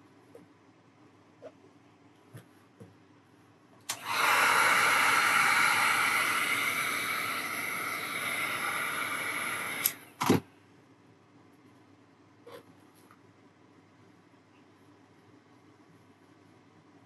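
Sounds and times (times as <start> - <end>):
heat gun blowing hiss: 3.9 - 10.1.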